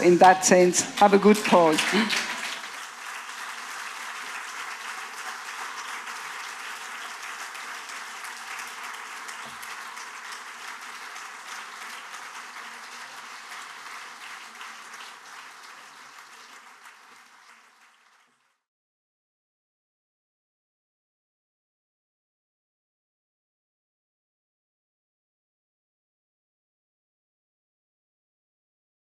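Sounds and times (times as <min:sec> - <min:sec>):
audience applauding: 0:00.0 - 0:18.6.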